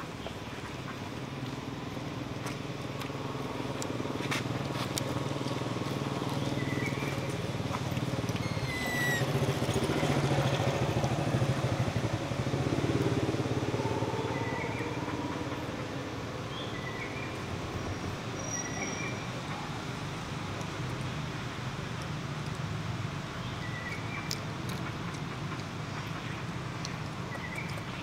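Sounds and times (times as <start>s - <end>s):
vehicle engine running: 0.1s - 16.8s
short high chirps: 8.4s - 9.3s.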